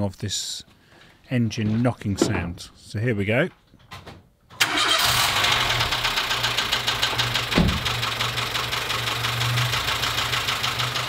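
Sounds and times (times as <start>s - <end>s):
car engine knocking: 5.8s - 11.0s.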